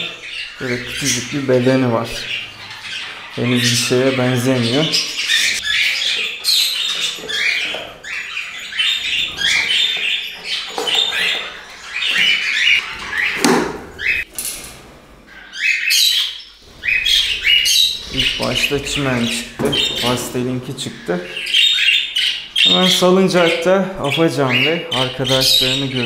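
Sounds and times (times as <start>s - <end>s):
budgerigars chirping: 0.0s - 14.3s, 15.3s - 26.0s
sharp knock: 13.4s - 13.9s.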